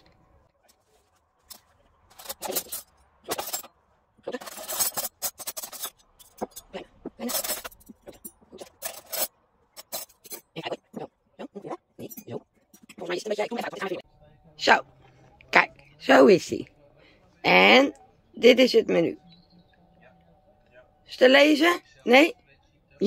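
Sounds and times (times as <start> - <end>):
cutlery clinking and scraping: 1.4 - 11.1, 12.0 - 14.0.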